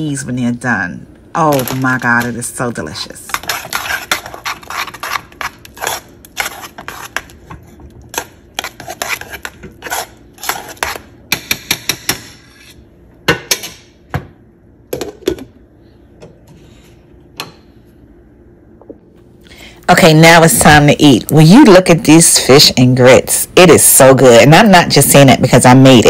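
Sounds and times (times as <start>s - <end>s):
whisk scraping in pot: 3.1s - 12.8s.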